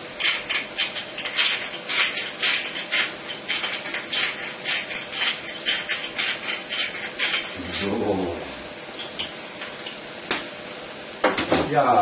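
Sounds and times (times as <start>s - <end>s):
pepper mill grinding: 0.0s - 8.3s.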